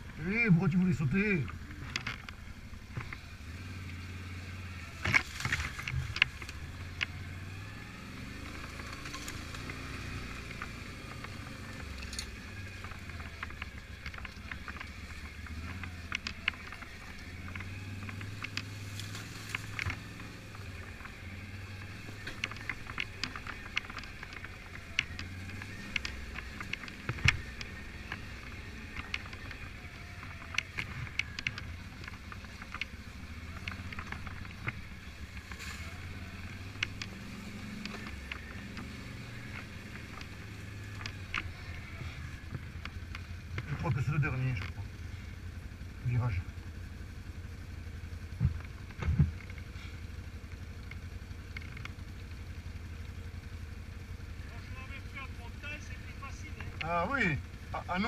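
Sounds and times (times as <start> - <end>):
quad engine running: 0.0 - 58.0
rocks and brush scraping: 1.5 - 44.8.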